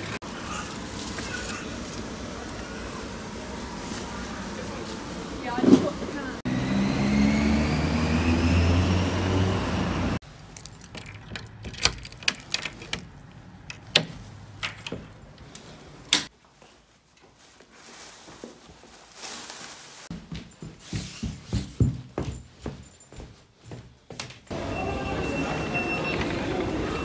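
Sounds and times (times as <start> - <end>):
vehicle engine whining: 2.0 - 10.2, 24.5 - 27.0
keys jangling: 10.2 - 13.1
key clicking in door lock: 10.9 - 13.1.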